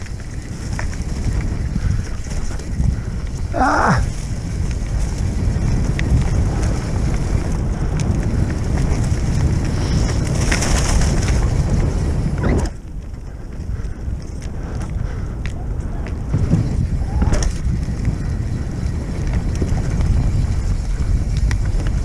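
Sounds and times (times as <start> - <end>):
bike rattling over bumps: 0.0 - 22.0
tyres rolling over leaves and dirt: 0.0 - 22.0
wind buffeting microphone: 0.0 - 22.0.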